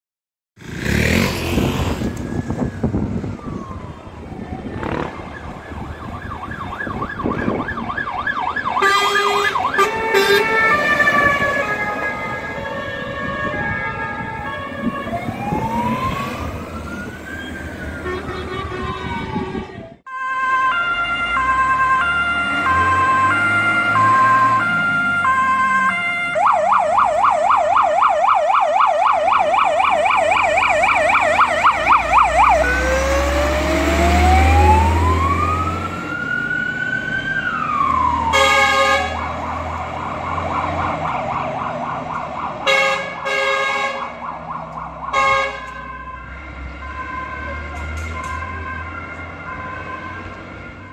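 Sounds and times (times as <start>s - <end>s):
fire engine siren: 1.1s - 50.9s
horn blasts: 8.8s - 10.8s, 18.0s - 20.2s, 38.3s - 39.2s, 42.6s - 44.1s, 45.1s - 45.8s.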